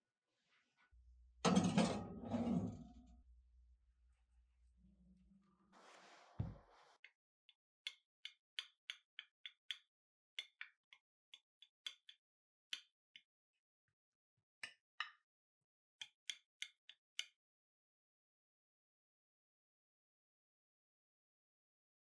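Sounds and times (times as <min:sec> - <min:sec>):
knife cutting cake ticks: 0:07.5 - 0:13.3.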